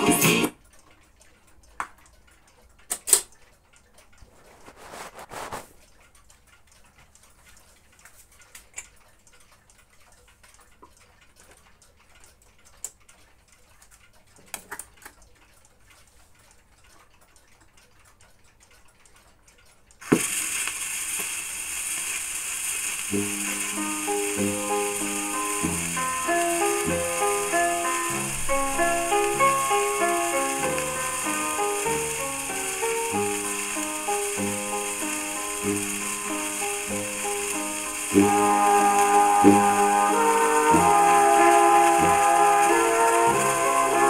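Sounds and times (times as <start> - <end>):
record hiss and crackle: 0.0 - 44.0
disc brushing on platter: 20.0 - 44.0
tonearm clicks: 20.0 - 44.0.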